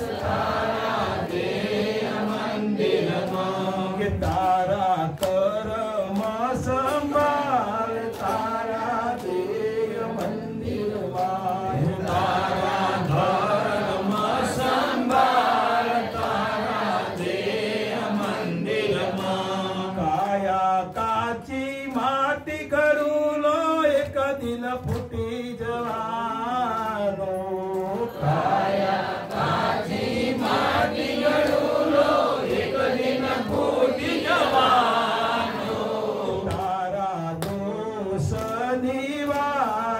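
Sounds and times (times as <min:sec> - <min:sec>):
men singing a devotional chant: 0:00.0 - 0:39.9.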